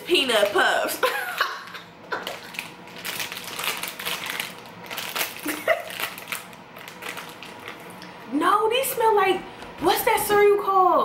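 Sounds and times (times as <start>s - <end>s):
plastic snack bag crinkling: 2.1s - 8.1s.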